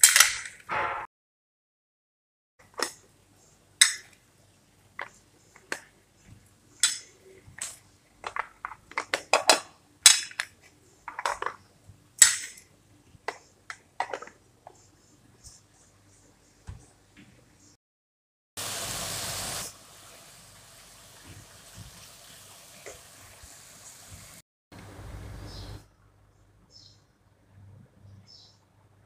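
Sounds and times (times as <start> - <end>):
plastic lids clicking and knocking: 6.8 - 12.6, 13.2 - 14.8.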